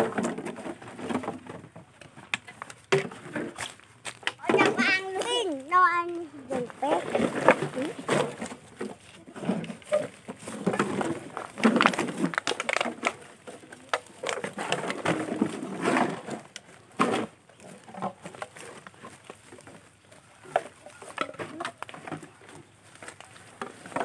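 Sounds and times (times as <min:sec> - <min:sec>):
plastic bottles crackling and knocking: 0:00.0 - 0:24.0.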